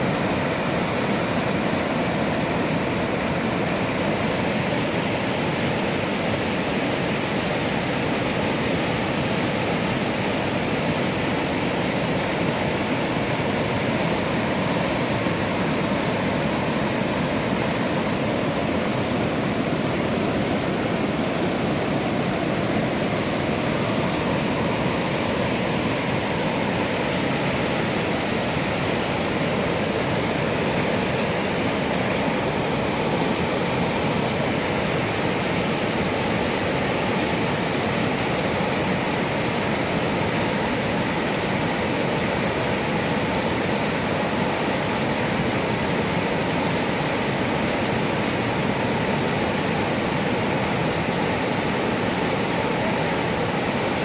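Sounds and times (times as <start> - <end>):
river rushing over rocky rapids: 0.0 - 54.0.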